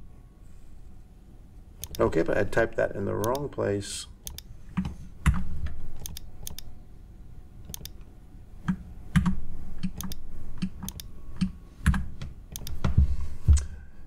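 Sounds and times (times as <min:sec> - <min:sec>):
keyboard keys clicking: 0:01.8 - 0:02.1, 0:06.0 - 0:06.7, 0:07.7 - 0:08.0, 0:08.7 - 0:12.9.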